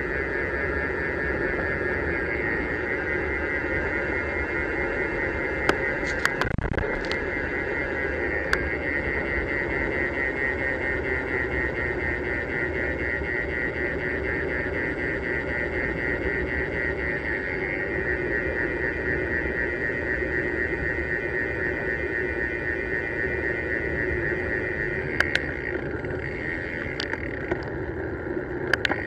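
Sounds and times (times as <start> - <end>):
high even whirr: 0.0 - 29.0
wind and road noise: 0.0 - 29.0.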